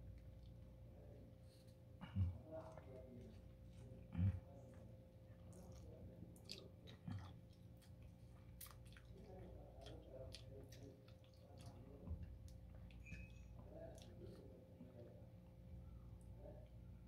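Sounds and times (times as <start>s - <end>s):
faint low hum: 0.0s - 17.0s
person chewing: 5.5s - 15.1s.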